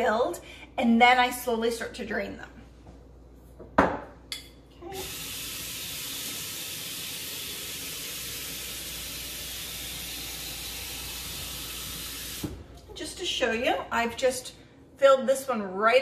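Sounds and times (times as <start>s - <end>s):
faucet water pouring into jar: 5.0s - 12.4s.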